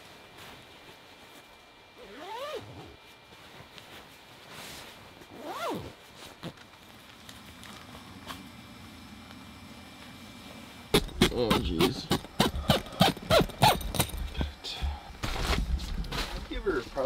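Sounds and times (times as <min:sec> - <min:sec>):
zipper pulled: 0:02.0 - 0:03.0, 0:05.3 - 0:06.7, 0:11.0 - 0:14.1.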